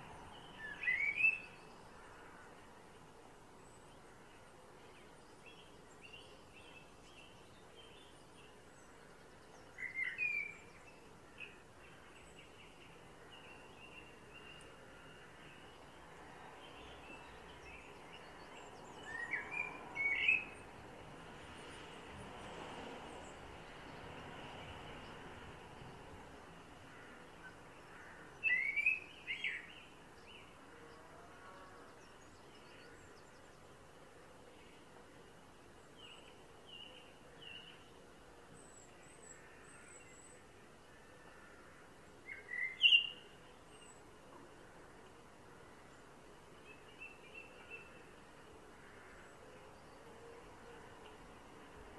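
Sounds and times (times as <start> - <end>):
faint background hiss: 0.0 - 51.9
blackbird singing: 0.3 - 1.8, 5.4 - 11.0, 16.8 - 20.6, 28.4 - 30.4, 42.3 - 44.0.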